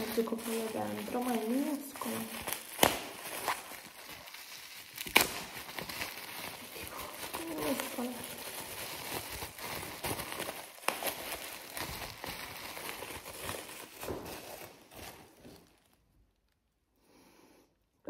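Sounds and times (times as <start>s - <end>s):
packaging rustling and crinkling: 0.0s - 16.8s.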